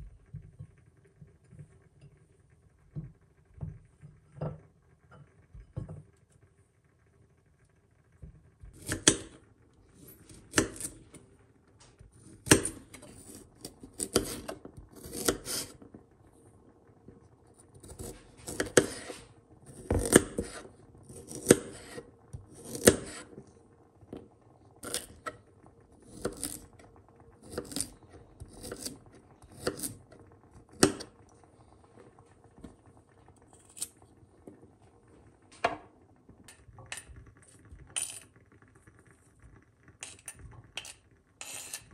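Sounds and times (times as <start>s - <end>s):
knife slicing carrot: 12.4s - 15.7s, 17.8s - 23.2s.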